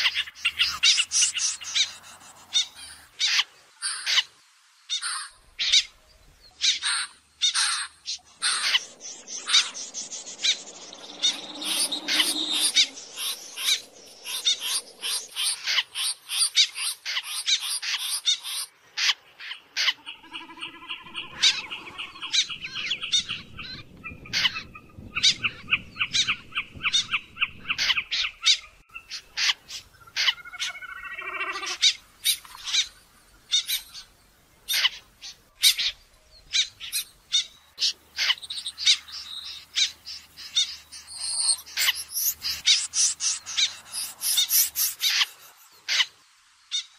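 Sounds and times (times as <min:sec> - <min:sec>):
snipe calls: 0:06.6 - 0:19.2, 0:25.2 - 0:34.1, 0:34.7 - 0:46.1.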